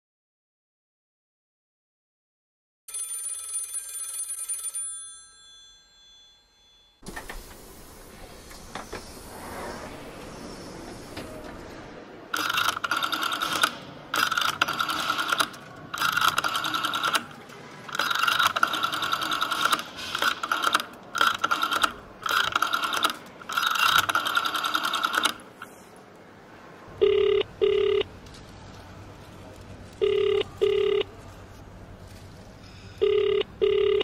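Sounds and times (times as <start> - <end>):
electronic double telephone ring: 2.9 - 5.6, 27.0 - 28.1, 30.0 - 31.1, 33.0 - 34.0
telephone bell ringing: 2.9 - 7.0, 27.0 - 28.1, 30.0 - 31.1, 33.0 - 34.0.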